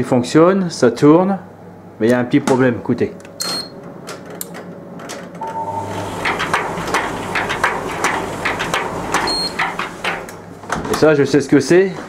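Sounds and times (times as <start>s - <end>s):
short beep: 5.4s - 5.8s
dryer motor humming: 5.4s - 11.7s
drum scraping metal panel: 5.8s - 10.6s.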